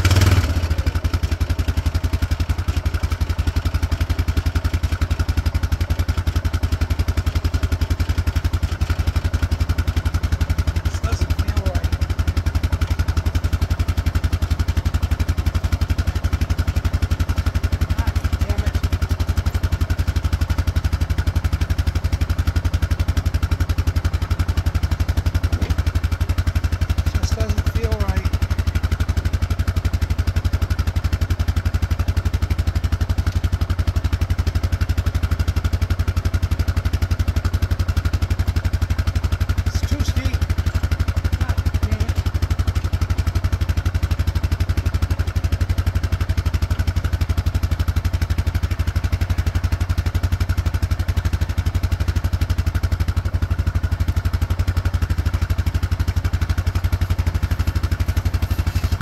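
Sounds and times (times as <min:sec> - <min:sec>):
atv engine idling: 0:00.0 - 0:59.0
light clatter: 0:25.4 - 0:26.1.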